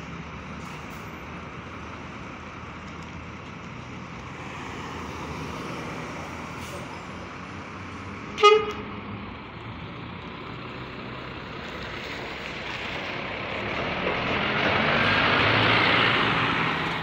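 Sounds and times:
diesel coach engine pulling away: 0:00.0 - 0:17.0
short horn toot: 0:08.4 - 0:08.9.

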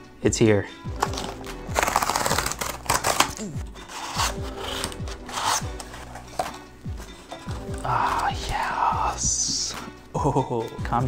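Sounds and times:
cardboard box ripping open: 0:01.0 - 0:06.6
cardboard flaps rustling: 0:04.0 - 0:08.6.

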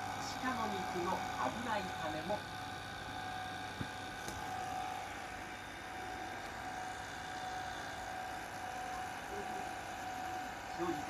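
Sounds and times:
tape recorder mechanical whir: 0:00.0 - 0:11.0.

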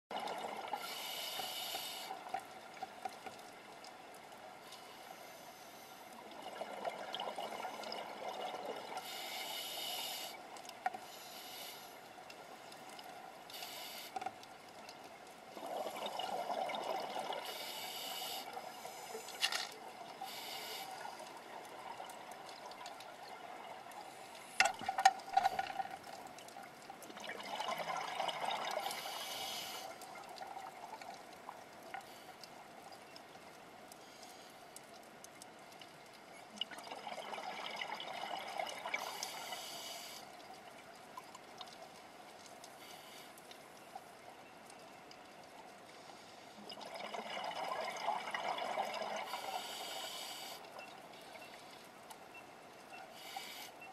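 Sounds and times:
regulator hiss on inhale: 0:00.7 - 0:02.4, 0:04.6 - 0:06.2, 0:09.0 - 0:12.2, 0:13.5 - 0:14.4, 0:17.4 - 0:21.4, 0:28.8 - 0:30.0, 0:34.0 - 0:34.8, 0:39.0 - 0:40.4, 0:42.7 - 0:43.8, 0:45.9 - 0:46.6, 0:49.2 - 0:51.8, 0:53.1 - 0:53.9
exhaled air bubbling: 0:06.2 - 0:10.8, 0:15.4 - 0:32.5, 0:36.5 - 0:40.7, 0:46.6 - 0:52.4.

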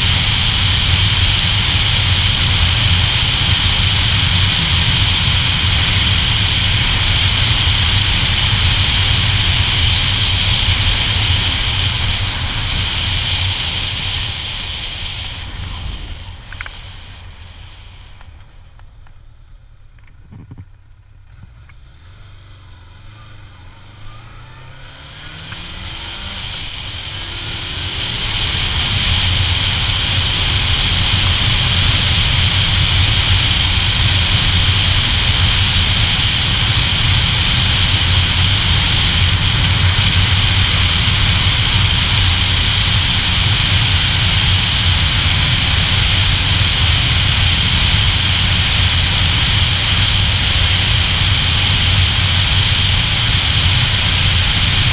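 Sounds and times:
motorcycle engine pulling away: 0:19.5 - 0:54.9.

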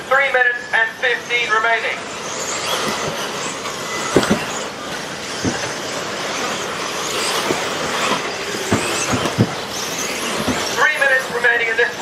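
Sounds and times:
high-pitched motor whine: 0:00.0 - 0:12.0
tyre noise on dirt: 0:04.0 - 0:04.7, 0:07.2 - 0:10.8
sharp knocks: 0:04.1 - 0:04.5, 0:05.4 - 0:05.8, 0:07.4 - 0:09.6.

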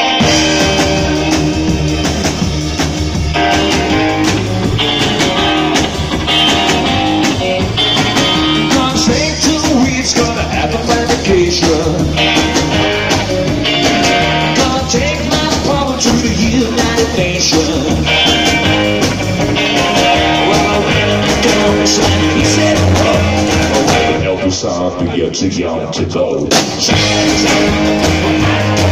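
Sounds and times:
electric guitar: 0:00.0 - 0:25.2, 0:26.4 - 0:28.9
drum kit steady beat: 0:00.0 - 0:25.3, 0:26.5 - 0:28.9
live rock and roll band playing: 0:00.0 - 0:28.9
upright bass: 0:00.0 - 0:28.9
man singing: 0:08.4 - 0:12.6, 0:14.2 - 0:18.7, 0:19.7 - 0:28.9.

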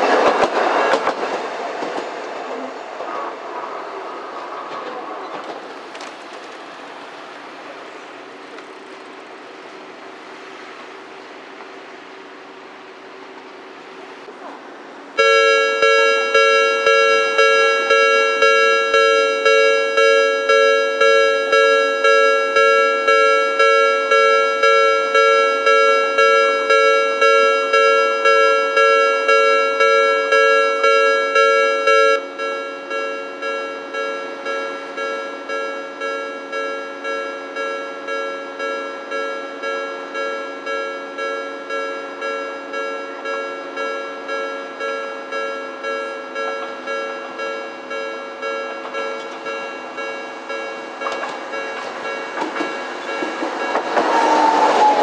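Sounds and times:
level crossing alarm dinging: 0:15.2 - 0:55.0.

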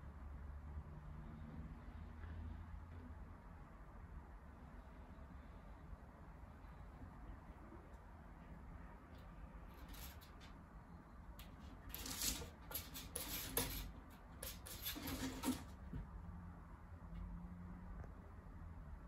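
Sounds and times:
kitten claws scratching wooden shelf: 0:09.7 - 0:10.6, 0:11.4 - 0:15.9.

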